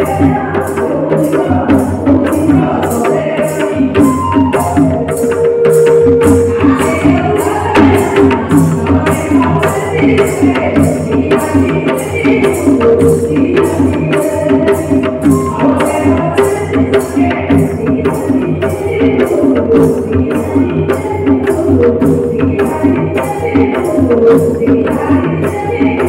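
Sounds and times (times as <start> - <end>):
percussion beat: 0.0 - 26.0
woman singing folk song: 6.7 - 26.0.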